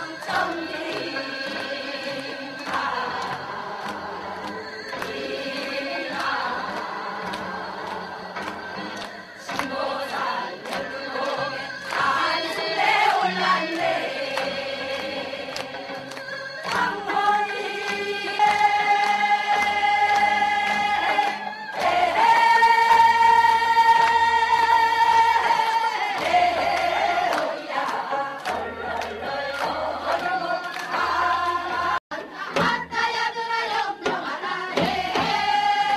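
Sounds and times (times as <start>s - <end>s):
chorus of women singing: 0.0s - 35.9s.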